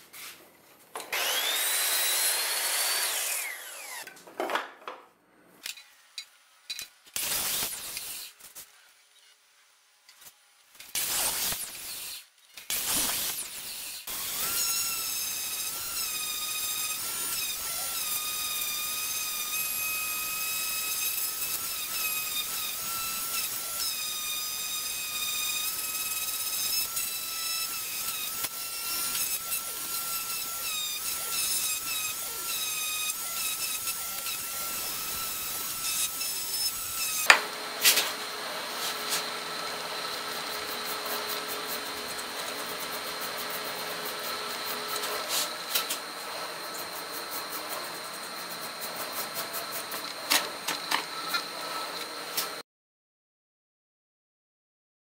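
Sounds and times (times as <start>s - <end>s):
orbital sander motor whine: 1.1s - 4.0s, 34.0s - 52.3s.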